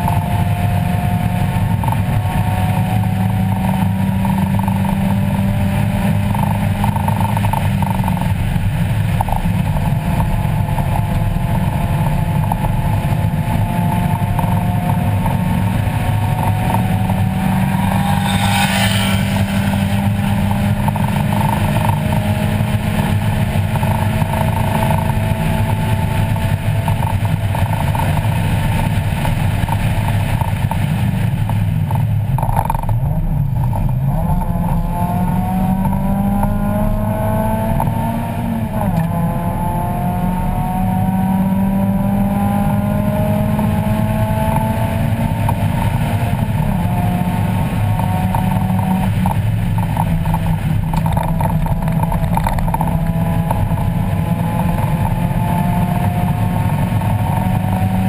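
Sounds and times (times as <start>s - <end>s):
car engine accelerating: 0.0s - 58.0s
road and wind noise: 0.0s - 58.0s.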